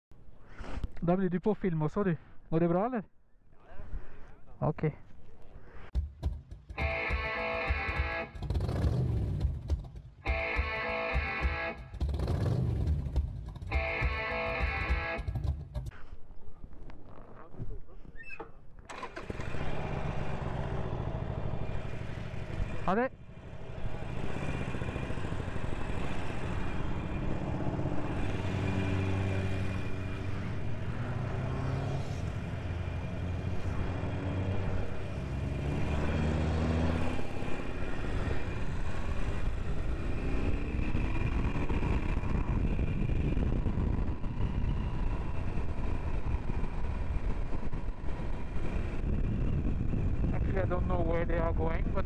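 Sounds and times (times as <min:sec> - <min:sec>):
motorcycle accelerating through gears: 0:06.8 - 0:15.9, 0:18.9 - 0:50.4
wind noise on microphone: 0:38.5 - 0:52.0.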